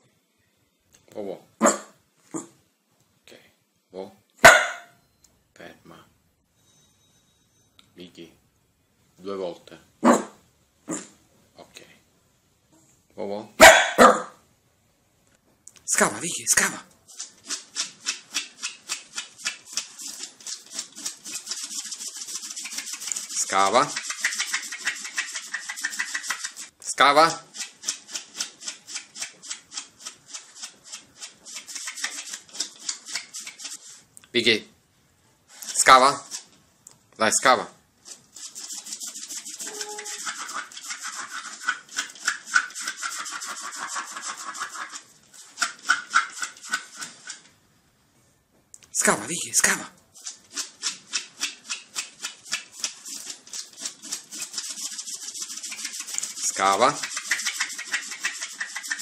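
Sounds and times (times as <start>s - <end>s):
dog claws scraping mat: 17.1s - 26.7s, 27.5s - 34.0s, 50.2s - 59.0s.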